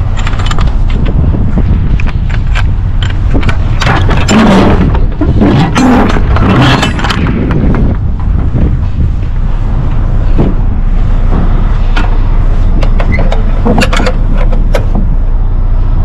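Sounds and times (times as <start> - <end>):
knocks and rattles: 0.0 - 8.6, 11.2 - 15.2
truck diesel engine rumble: 0.0 - 16.0.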